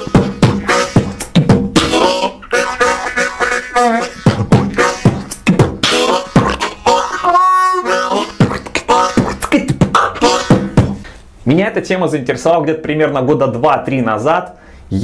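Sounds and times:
beatbox drum hits: 0.0s - 11.1s
harmonica notes: 0.0s - 11.2s.

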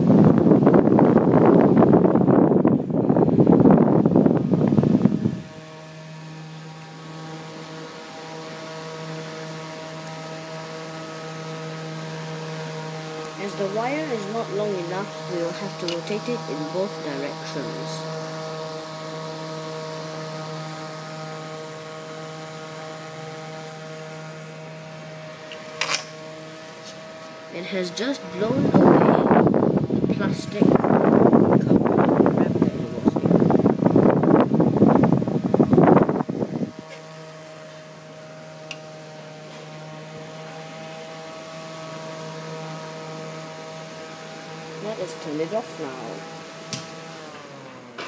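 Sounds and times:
computer fan running: 0.0s - 48.0s.

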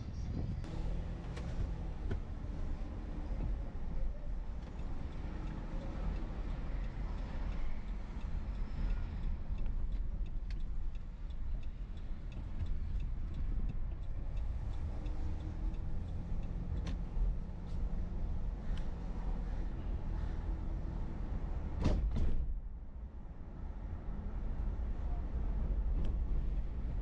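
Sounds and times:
car road and engine rumble: 0.0s - 27.0s
turn signal ticking: 0.6s - 19.0s.

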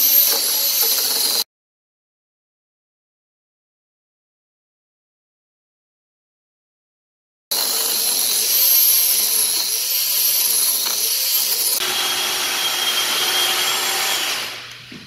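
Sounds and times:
grinder carving wood: 0.0s - 1.4s, 7.5s - 14.8s
power saw cutting log: 0.0s - 1.4s, 7.5s - 14.8s.

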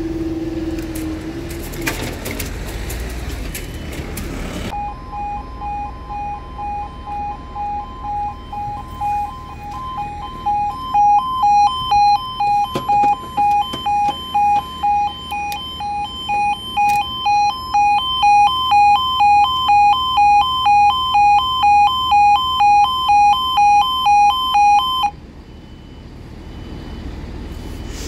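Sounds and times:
level crossing two-tone alarm: 4.7s - 26.0s.

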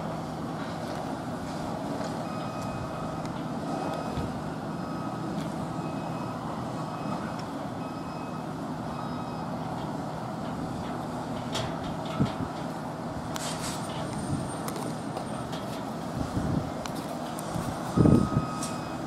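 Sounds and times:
vehicle reversing alarm beeping: 2.0s - 11.3s, 17.4s - 19.0s.

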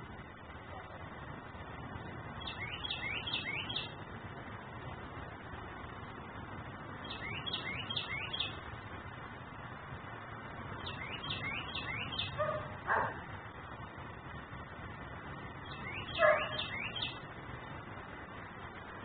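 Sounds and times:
steady background hiss: 0.0s - 19.0s
songbird chirping: 2.3s - 4.0s, 6.9s - 8.8s, 10.7s - 13.3s, 15.4s - 17.3s
dog bark: 12.4s - 13.3s, 16.2s - 16.7s.

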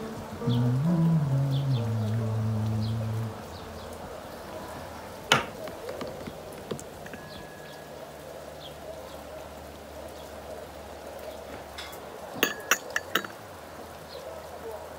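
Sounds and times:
steady rain falling: 0.0s - 14.9s
glass clinking on metal saucer: 7.0s - 7.7s, 11.8s - 13.4s.

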